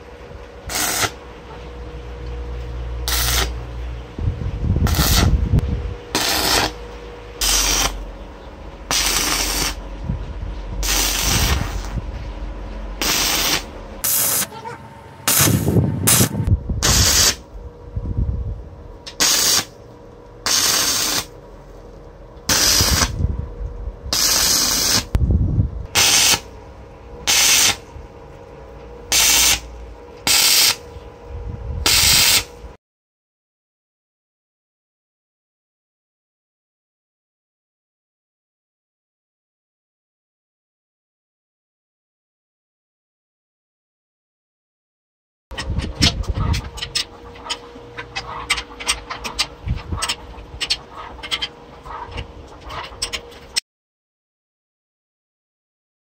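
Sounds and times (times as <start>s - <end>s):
arc welder sizzling crackle: 0.0s - 4.2s, 4.8s - 10.0s, 10.7s - 17.6s, 18.9s - 25.2s, 25.9s - 31.1s, 31.8s - 32.8s.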